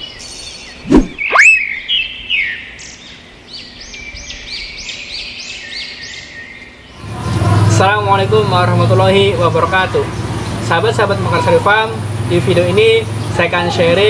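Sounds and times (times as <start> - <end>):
bird chirps: 0.0 - 7.1
swoosh: 0.8 - 1.6.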